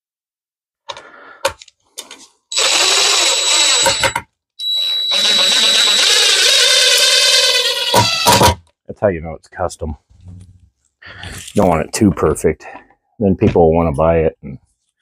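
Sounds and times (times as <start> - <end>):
power drill driving screws: 2.5 - 8.6.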